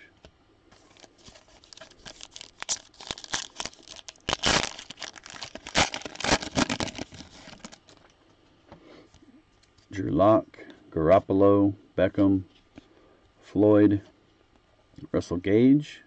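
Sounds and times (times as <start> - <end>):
plastic wrapper crinkling and ripping: 0.8 - 8.1.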